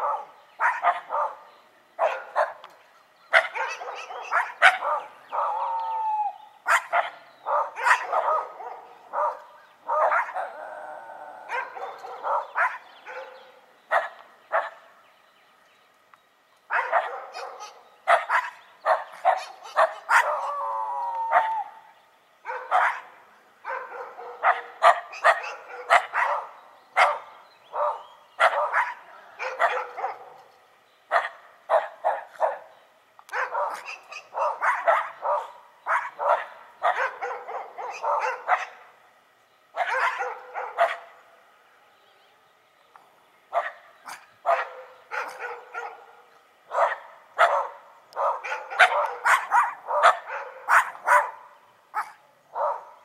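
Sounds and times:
dogs barking: 0.0 - 2.7, 3.3 - 5.8, 6.6 - 14.8, 16.7 - 20.7, 22.4 - 30.5, 31.1 - 32.7, 33.3 - 38.9, 39.8 - 41.2, 43.5 - 53.0
dogs howling: 3.4 - 13.4, 16.8 - 21.9.

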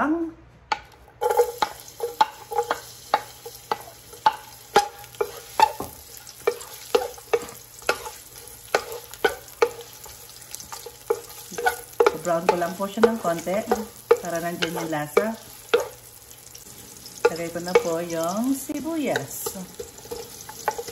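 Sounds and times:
spatula knocking on metal pot: 0.7 - 9.9, 10.7 - 16.0, 17.2 - 18.3, 19.1 - 20.9
garlic sizzling in hot oil: 1.2 - 20.9.

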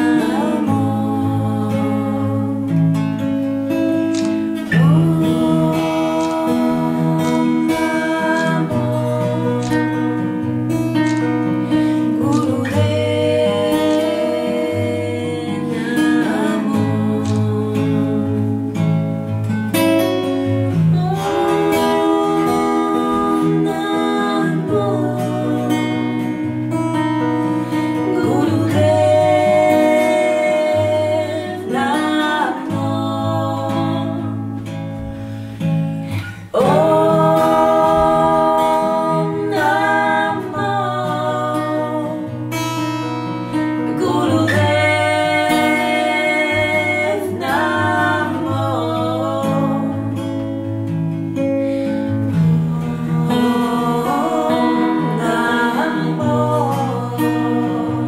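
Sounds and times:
acoustic guitar: 0.0 - 58.0
woman singing long notes: 4.7 - 10.1, 12.2 - 18.4, 20.7 - 26.3, 27.4 - 34.4, 36.2 - 42.4, 43.9 - 50.3, 52.4 - 58.0.

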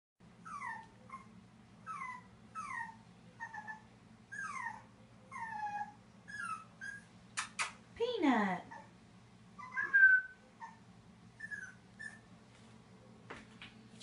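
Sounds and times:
puppy whimpering: 0.4 - 7.6, 9.6 - 12.3.

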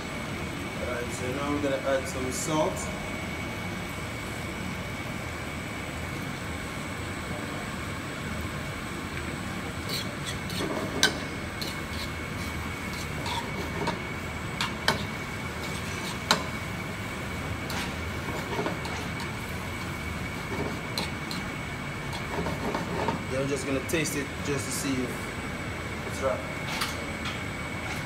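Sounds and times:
steady kitchen roar: 0.0 - 28.0
spatula scraping a frying pan: 9.8 - 16.5, 17.6 - 23.3.

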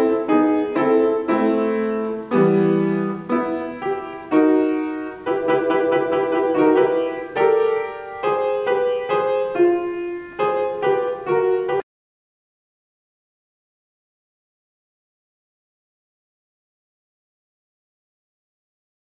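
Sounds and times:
grand piano melody: 0.0 - 11.8.

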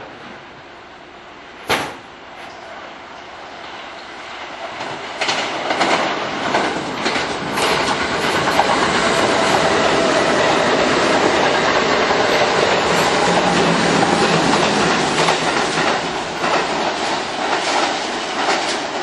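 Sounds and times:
train passing at speed: 0.0 - 19.0
wheels clacking over rail joints: 4.7 - 19.0.

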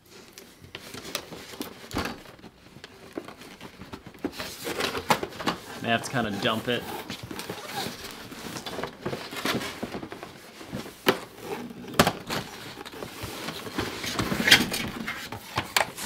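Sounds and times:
cardboard scraping and rustling: 0.8 - 16.0.

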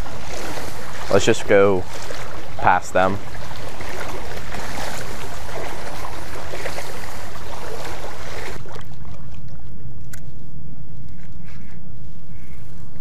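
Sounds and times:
water sloshing around legs: 0.0 - 9.9.

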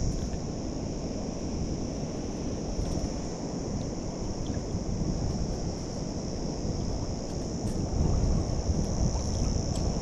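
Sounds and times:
constant high hiss: 0.0 - 10.0
wind buffeting microphone: 3.8 - 10.0.

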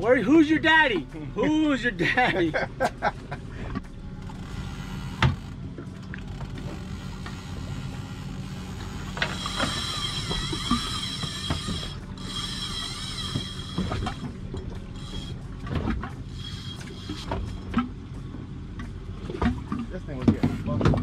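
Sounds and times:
steady low hum: 0.0 - 21.0
fishing reel drag whining: 4.2 - 5.6, 6.2 - 17.7
reel clicks: 4.2 - 17.9.

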